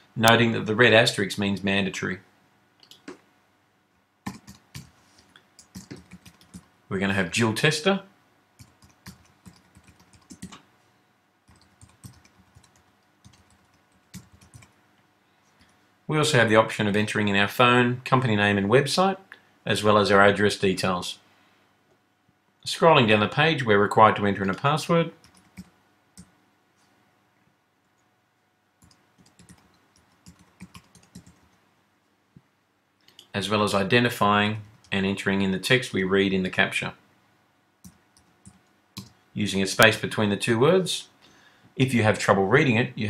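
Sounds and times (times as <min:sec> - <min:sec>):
keyboard typing: 0:04.2 - 0:06.7, 0:08.6 - 0:10.6, 0:11.5 - 0:14.8, 0:25.2 - 0:26.3, 0:28.8 - 0:31.6, 0:37.8 - 0:39.2.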